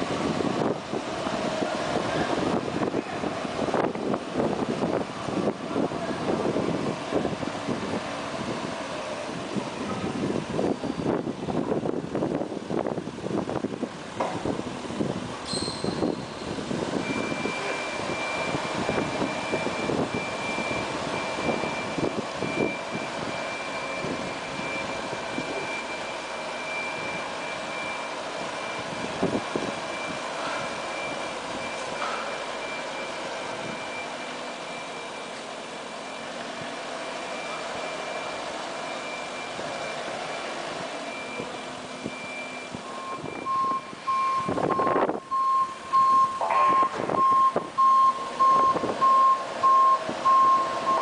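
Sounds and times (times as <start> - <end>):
forklift engine running: 0.0 - 51.0
high-pitched warning beeper: 15.5 - 35.4, 37.0 - 51.0
lower beeping: 15.5 - 51.0.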